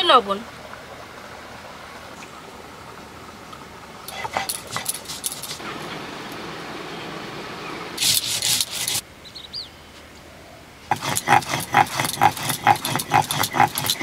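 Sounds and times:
stone roller scraping grinding stone: 8.0s - 9.0s, 10.9s - 14.0s.

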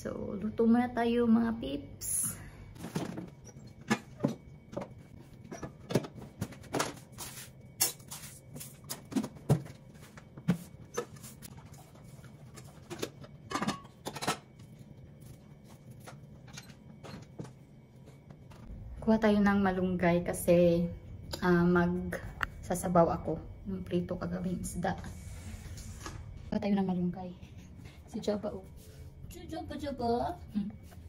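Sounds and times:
kitchenware clicks and clatter: 12.5s - 14.5s.

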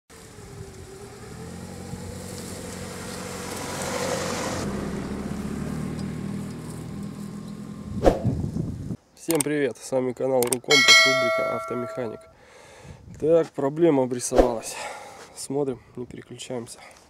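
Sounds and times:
car driving on dirt track: 0.1s - 8.2s.

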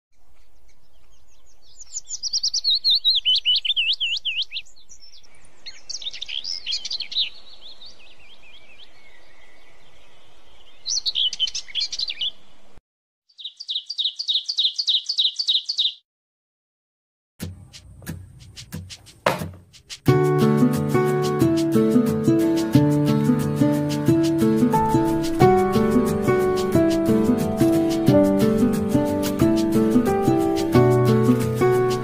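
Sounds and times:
songbirds chirping and whistling: 0.2s - 12.5s, 13.3s - 16.0s
bird trill: 0.4s - 12.4s, 13.3s - 16.0s.

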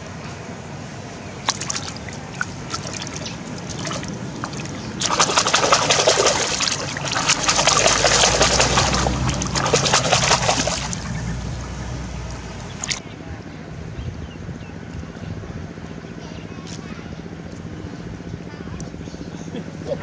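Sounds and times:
catfish splashing in water: 1.4s - 13.0s.

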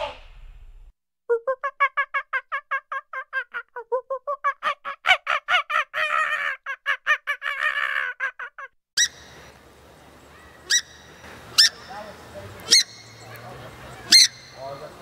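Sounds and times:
steady background hiss: 9.0s - 15.0s
swamphen squawks: 10.2s - 15.0s
nasal honking animal calls: 10.3s - 15.0s.

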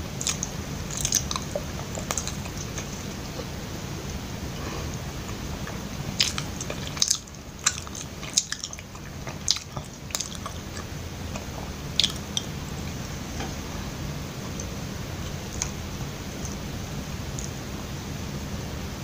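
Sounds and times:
close-miked chewing: 0.0s - 13.6s, 14.4s - 16.7s.

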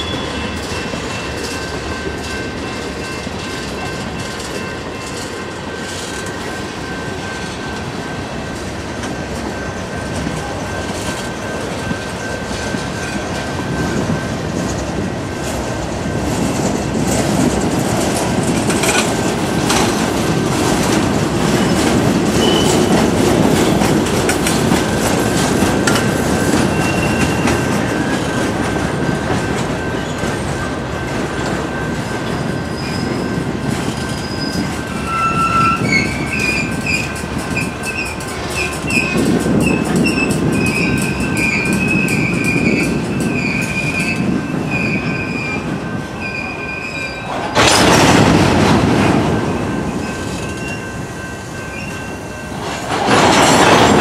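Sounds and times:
train wheels rumbling and clattering: 0.0s - 54.0s
high wheel squeals: 21.6s - 22.9s, 26.6s - 28.3s, 32.4s - 47.5s.

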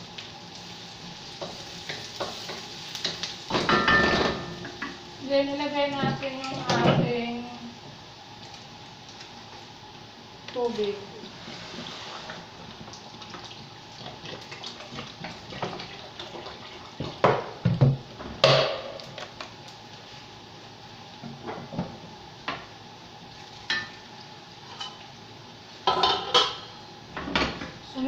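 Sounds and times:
kitchenware clunks: 3.5s - 4.9s
water pouring into a pot: 12.9s - 17.1s.

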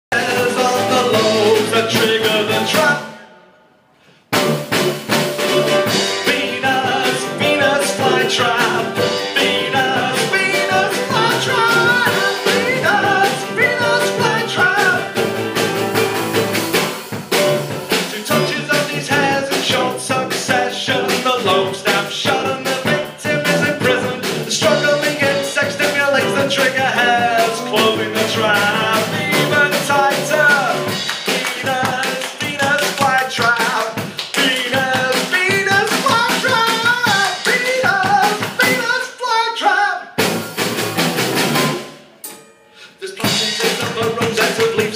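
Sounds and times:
person singing: 0.1s - 3.3s, 5.8s - 15.4s, 17.9s - 40.1s, 42.8s - 44.9s
percussive beat: 4.3s - 39.0s, 40.2s - 42.4s, 43.2s - 44.9s
guitar: 4.4s - 38.8s.

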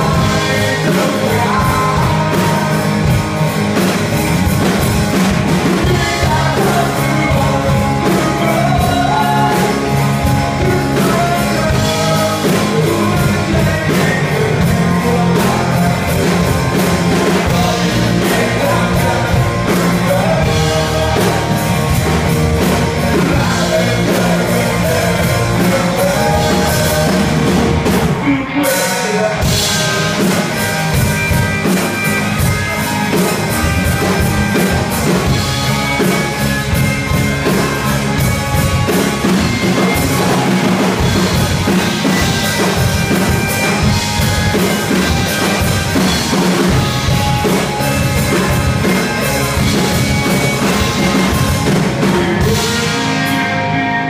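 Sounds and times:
person singing into a microphone: 0.0s - 3.2s, 5.8s - 16.6s, 17.2s - 22.0s, 22.9s - 30.5s, 52.2s - 54.0s
bass guitar: 0.0s - 54.0s
drum kit: 0.0s - 54.0s
electric guitars: 0.0s - 54.0s.

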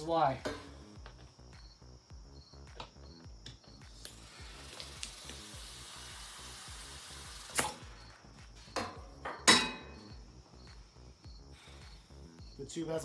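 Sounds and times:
compressed air hissing: 3.9s - 8.7s, 10.7s - 12.4s
tools knocking on bench: 8.8s - 9.9s.

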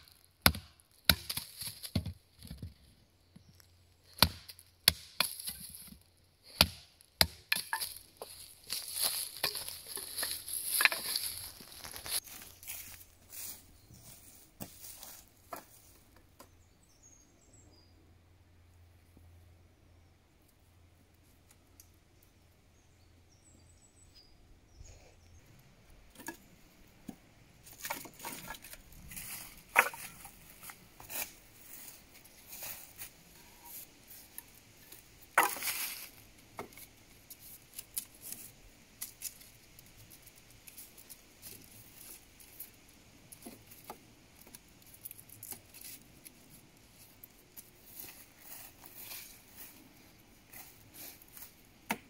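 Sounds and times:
wooden sticks knocking: 6.6s - 12.2s, 27.0s - 31.2s
dry leaves rustling: 7.5s - 16.0s, 27.6s - 51.7s.

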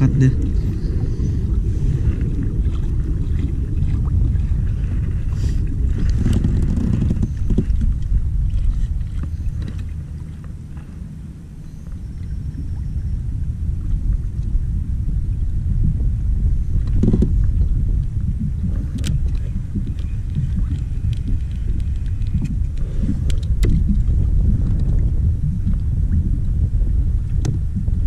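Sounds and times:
wind buffeting microphone: 0.0s - 28.0s
light clicks and knocks of gear: 8.8s - 10.9s, 18.9s - 23.9s.

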